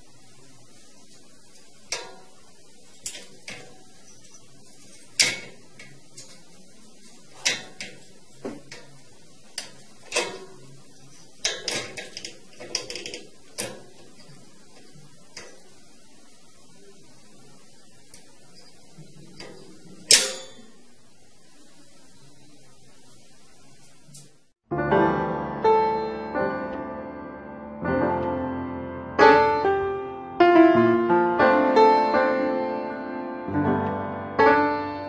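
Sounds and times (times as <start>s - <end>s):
wire cage door latch rattling: 4.8s - 6.5s, 7.4s - 8.1s, 9.6s - 10.8s, 11.4s - 14.3s, 19.4s - 20.7s.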